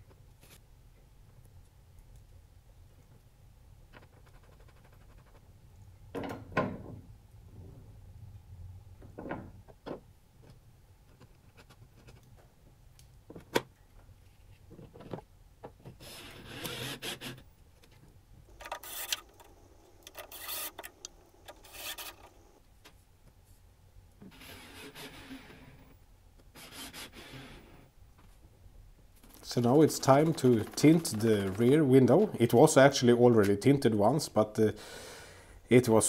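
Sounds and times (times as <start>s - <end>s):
cordless drill driving screws: 16.0s - 17.4s, 18.6s - 22.5s.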